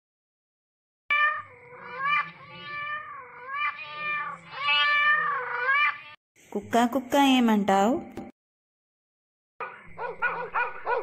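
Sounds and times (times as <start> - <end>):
cat meowing: 1.1 - 6.2.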